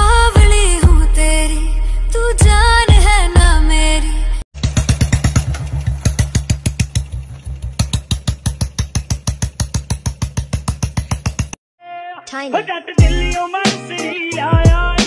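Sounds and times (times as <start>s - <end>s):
motorcycle engine thumping: 4.6s - 11.6s.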